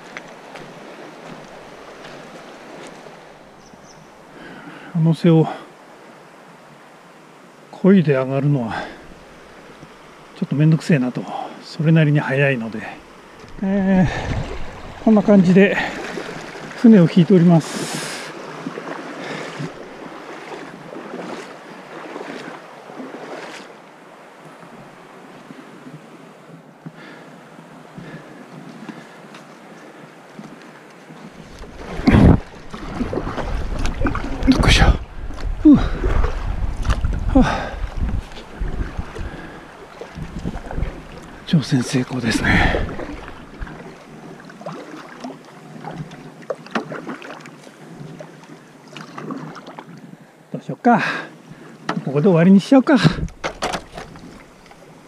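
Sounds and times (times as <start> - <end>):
river water gurgling and lapping: 0.0 - 55.0
stream rushing over stones: 7.8 - 25.7, 31.3 - 47.8
splashes of wading: 12.4 - 26.1, 26.9 - 50.1, 52.9 - 55.0
small splashes and drips: 18.0 - 23.7.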